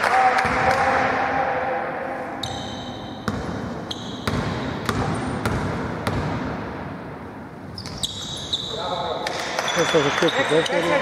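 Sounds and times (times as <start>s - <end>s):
sneaker squeaks on floor: 2.4s - 5.6s, 7.6s - 10.9s.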